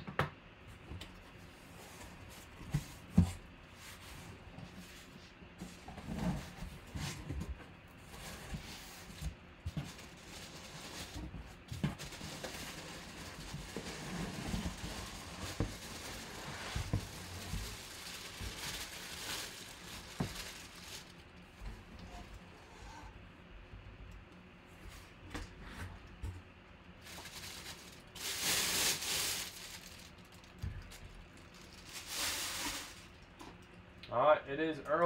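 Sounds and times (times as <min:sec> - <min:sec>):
cardboard scraping and rubbing: 0:08.0 - 0:18.7.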